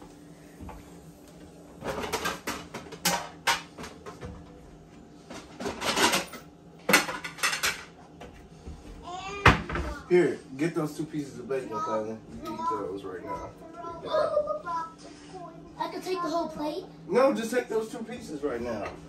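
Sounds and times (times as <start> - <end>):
dishes and utensils clattering: 1.8 - 4.5, 5.3 - 8.4.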